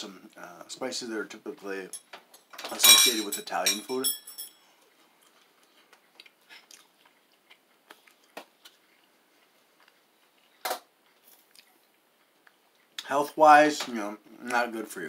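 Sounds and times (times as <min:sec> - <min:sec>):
chewing crunches: 0:05.2 - 0:13.0.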